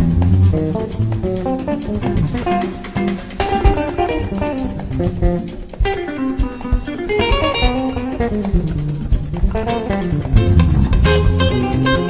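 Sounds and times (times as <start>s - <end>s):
electric bass runs: 0.0s - 1.4s
drum kit: 0.0s - 12.0s
electric guitar runs: 0.0s - 12.0s.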